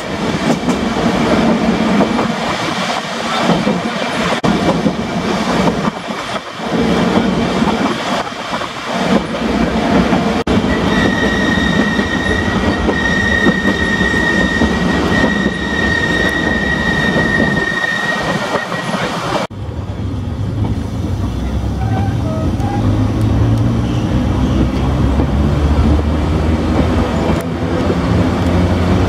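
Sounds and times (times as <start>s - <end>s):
tram rumbling clatter: 0.0s - 29.0s
high-pitched wheel squeal: 10.7s - 19.1s, 21.7s - 23.0s.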